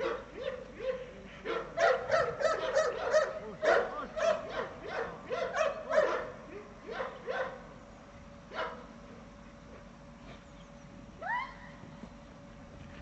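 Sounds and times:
dog barking rapidly: 0.0 - 7.7, 8.5 - 8.9.

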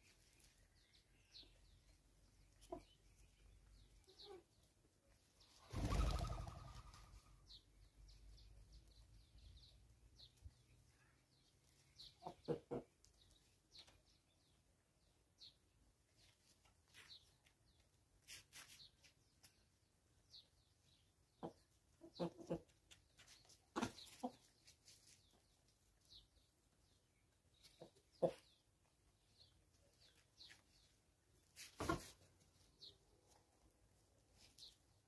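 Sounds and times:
chickens clucking: 5.7 - 7.4, 12.1 - 13.1, 21.4 - 24.8, 27.6 - 28.6.

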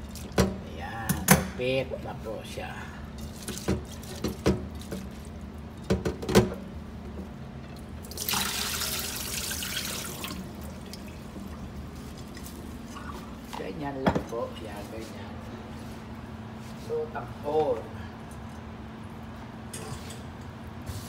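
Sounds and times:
low steady hum: 0.0 - 21.0
tap water running into sink: 8.1 - 11.1.

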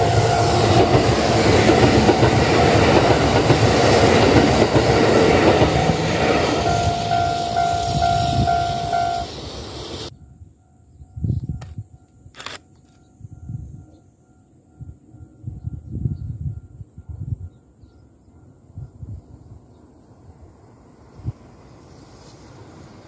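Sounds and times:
ringing tone: 0.0 - 1.2, 6.4 - 9.3, 10.1 - 21.3
train wheels rumbling on rail: 0.0 - 10.1.

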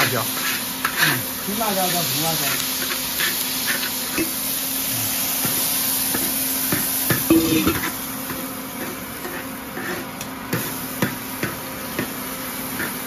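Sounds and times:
frying sizzle: 0.0 - 13.0
metal spatula clanking on wok: 7.3 - 7.9.

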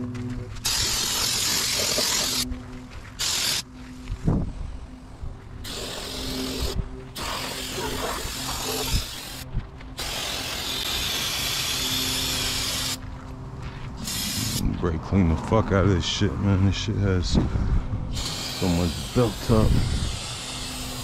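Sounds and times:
pressure washer spray hiss: 0.6 - 2.4, 3.2 - 3.6, 5.7 - 9.4, 10.0 - 13.0, 14.0 - 14.6, 18.1 - 21.0.

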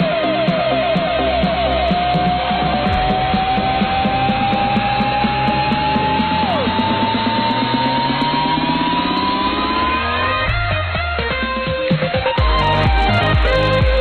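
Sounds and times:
fast rhythmic accompaniment: 0.0 - 14.0
long held note sliding upward: 1.2 - 11.1.

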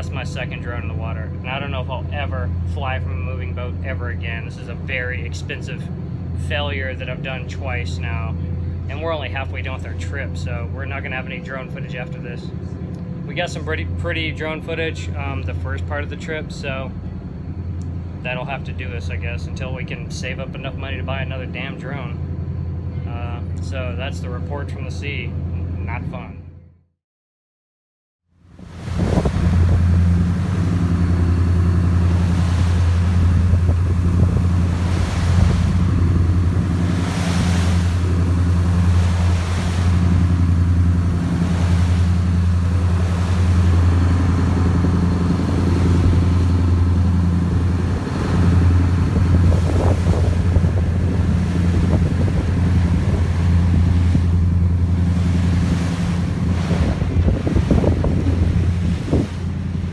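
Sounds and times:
boat engines droning: 0.0 - 26.7, 28.4 - 59.9
water rushing past hull: 28.4 - 59.9
wind on microphone: 28.6 - 59.9.

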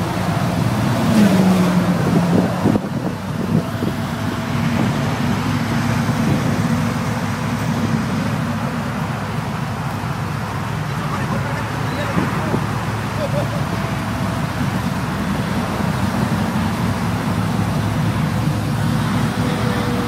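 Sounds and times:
engine at high revs: 0.0 - 20.0.

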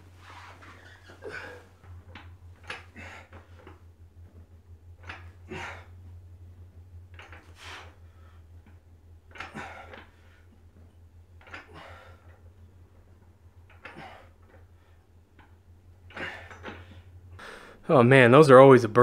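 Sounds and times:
low electrical hum: 0.0 - 19.0
man breathing out hard: 5.4 - 6.0, 9.4 - 10.3, 11.6 - 12.3, 17.3 - 17.8.

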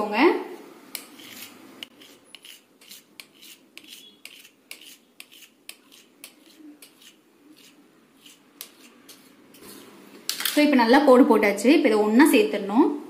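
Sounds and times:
knife scraping and tapping on stone: 0.9 - 9.6.

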